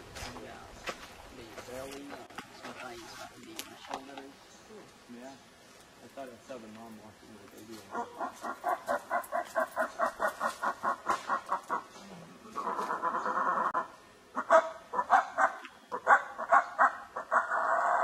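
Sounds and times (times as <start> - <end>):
howler monkeys roaring: 7.8 - 18.0
monkey grunts: 7.9 - 15.1.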